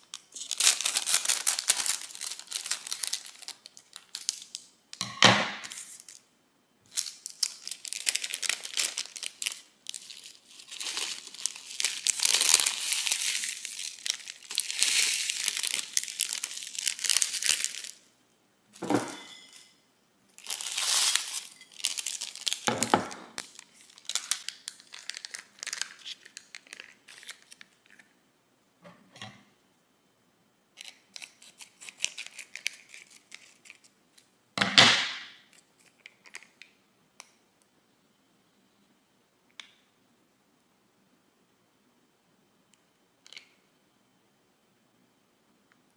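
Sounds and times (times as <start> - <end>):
plastic packets crinkling and tearing: 0.0 - 4.7, 6.9 - 18.0, 20.4 - 28.1, 30.8 - 34.3.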